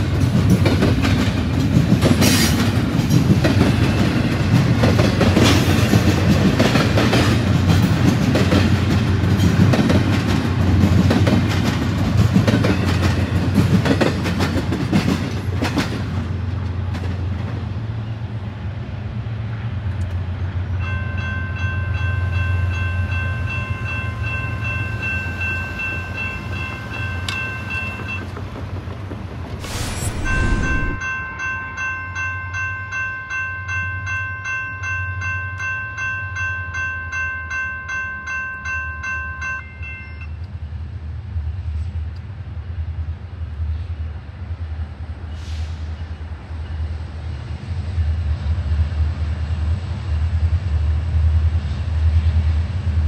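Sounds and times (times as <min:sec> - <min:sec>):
train wheels clattering over rails: 0:00.0 - 0:17.6
heavy low rumble: 0:29.6 - 0:31.0
steady high tone: 0:29.6 - 0:31.3.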